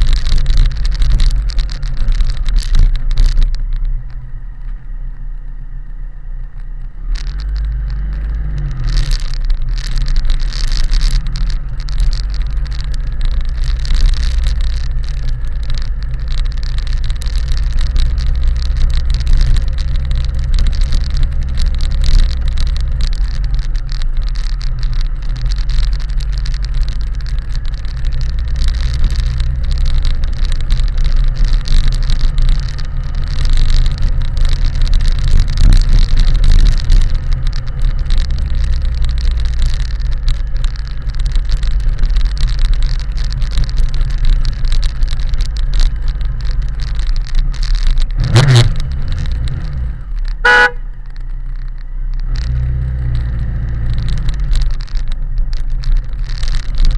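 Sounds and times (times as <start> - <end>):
motorcycle engine running: 0.0 - 56.9
short horn beep: 50.4 - 50.8.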